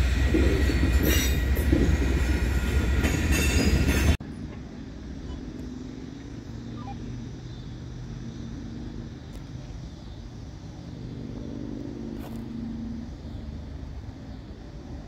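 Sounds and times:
distant engines rumbling: 0.0s - 15.0s.

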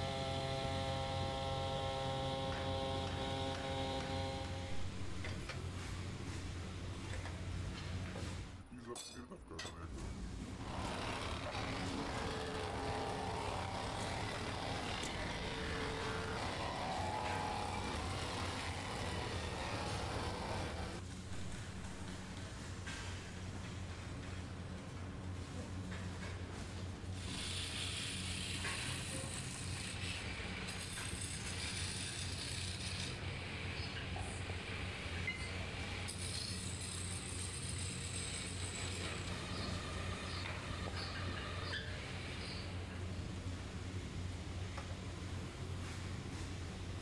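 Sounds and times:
wood lathe humming: 0.0s - 5.1s, 10.6s - 21.0s
electric wood planer running: 0.0s - 5.2s, 10.6s - 21.0s
turning tool scraping wood: 0.2s - 4.8s, 10.6s - 21.0s.

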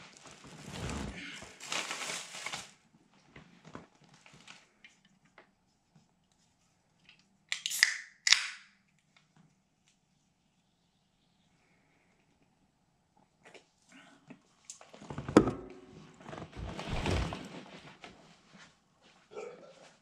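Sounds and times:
plastic bag rustling: 0.0s - 2.9s
can opening hiss: 7.5s - 8.7s
soda can clicks: 7.5s - 8.7s.

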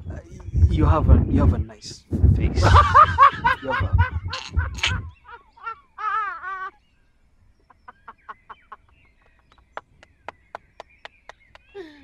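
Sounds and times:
woman giggling: 2.6s - 6.7s.

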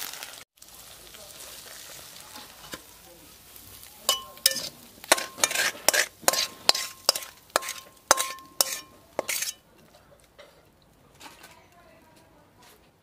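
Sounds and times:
spatula scraping metal pan: 4.1s - 9.6s.

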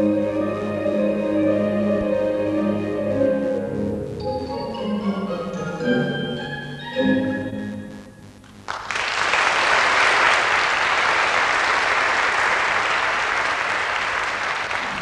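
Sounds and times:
orchestral music: 0.0s - 8.2s
audience applauding: 8.6s - 15.0s.

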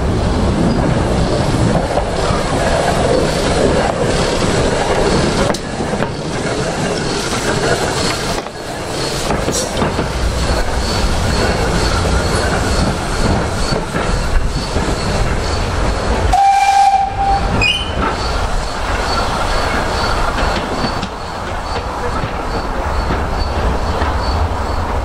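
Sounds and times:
steam hissing: 0.2s - 24.9s
steam whistle blast: 16.3s - 18.0s
high squeal: 16.3s - 21.8s.

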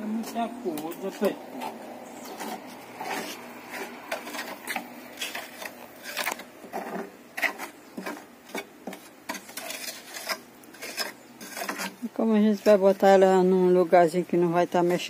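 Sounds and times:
hand smearing wet cement mortar: 0.0s - 12.9s.

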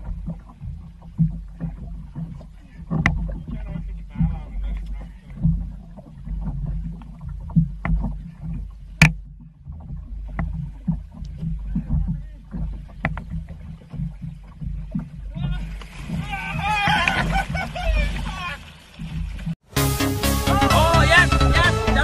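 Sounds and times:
sharp knocks: 0.0s - 3.6s, 6.4s - 15.1s
boat engine rumble: 0.0s - 22.0s.

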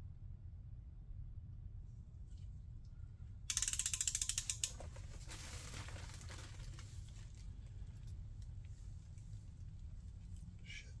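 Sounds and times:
socket ratchet clicking: 3.5s - 4.8s.

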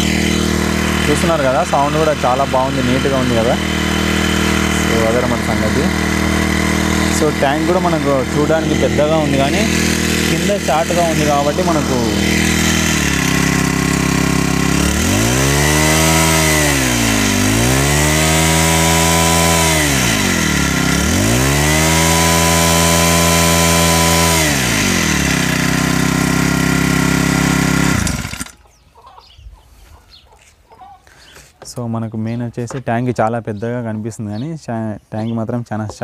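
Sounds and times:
small engine idling and revving: 0.0s - 28.8s.

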